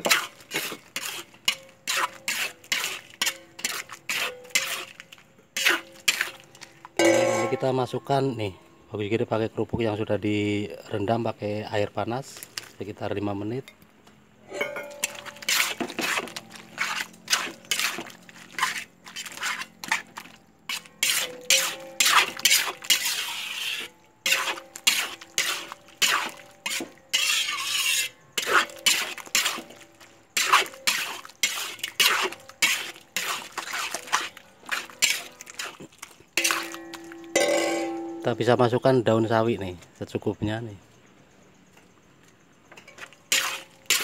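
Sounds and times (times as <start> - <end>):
metal spatula scraping a wok: 0.0 - 7.9, 14.4 - 38.3, 42.8 - 44.0.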